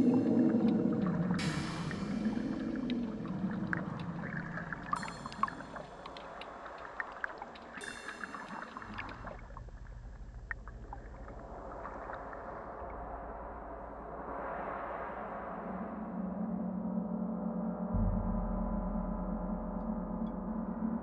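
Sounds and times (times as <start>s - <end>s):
underwater hiss: 0.0s - 6.0s, 6.7s - 9.4s
underwater clicks and crackles: 0.0s - 12.9s.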